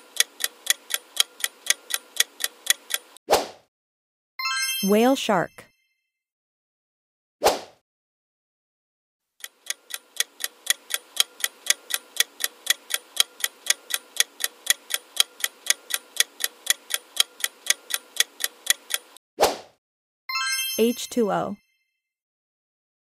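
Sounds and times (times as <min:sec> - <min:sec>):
clock ticking: 0:00.0 - 0:03.2, 0:09.4 - 0:19.2.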